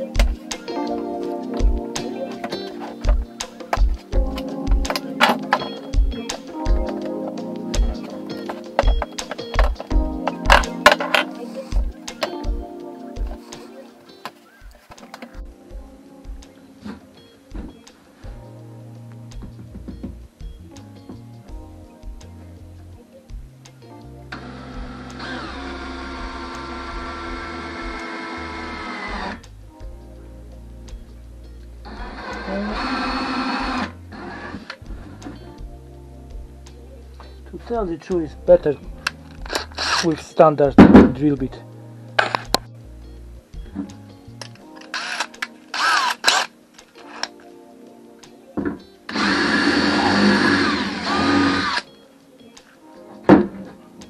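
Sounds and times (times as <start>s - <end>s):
cordless drill whining: 24.4s - 29.4s, 31.9s - 34.8s, 39.5s - 40.1s, 44.9s - 47.3s, 49.1s - 51.9s.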